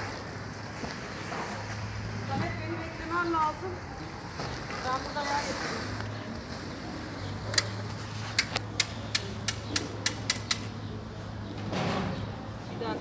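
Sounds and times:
sharp clicks: 0:08.4 - 0:10.7.

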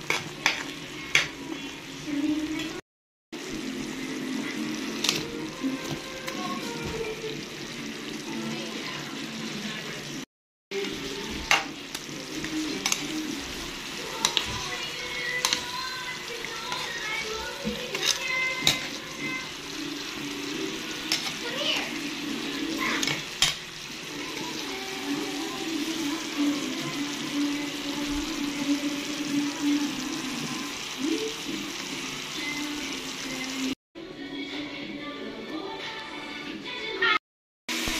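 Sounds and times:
liquid bubbling and sizzling in pan: 0:00.0 - 0:02.8, 0:03.4 - 0:33.8
background music: 0:10.7 - 0:37.2.

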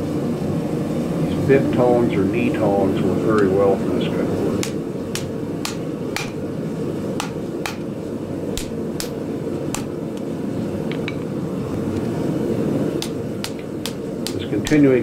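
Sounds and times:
gas forge roaring: 0:00.0 - 0:15.0
hammer striking steel on anvil: 0:04.6 - 0:06.4, 0:07.2 - 0:07.9, 0:08.6 - 0:09.9.

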